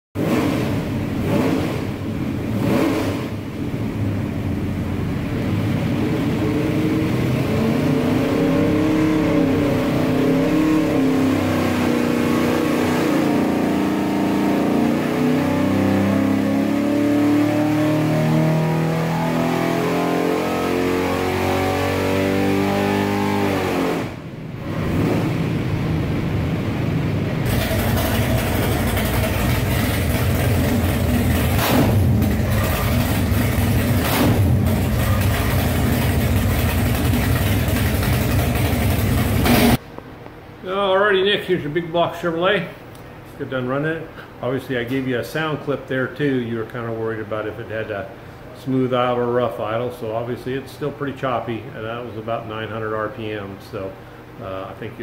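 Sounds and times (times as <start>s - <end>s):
engine revving under load: 0.2s - 4.2s, 4.9s - 39.8s
engine idling with choppy beat: 27.5s - 39.8s.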